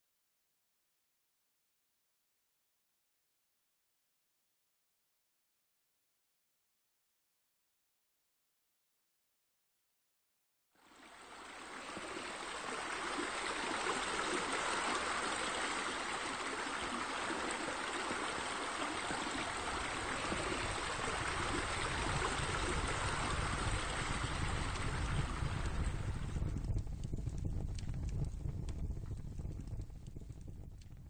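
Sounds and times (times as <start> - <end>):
trickling water: 10.8 - 30.9
low rumble: 20.8 - 31.0.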